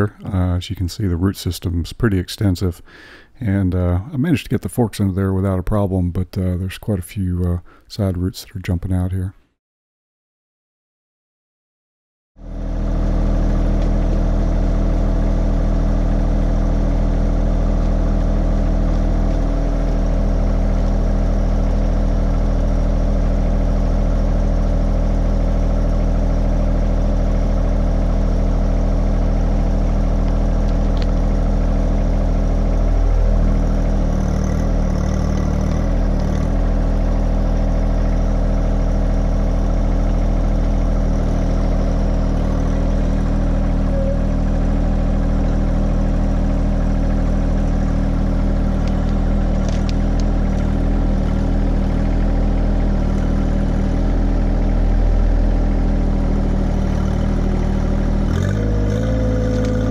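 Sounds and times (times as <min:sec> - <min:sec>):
tractor diesel engine idling: 0:12.4 - 0:59.9.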